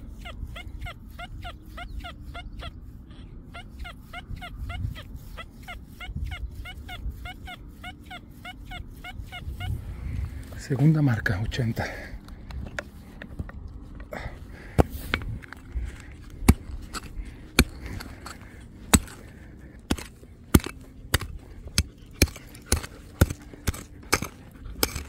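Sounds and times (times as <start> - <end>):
digging tool striking hard ground: 16.3 - 25.0.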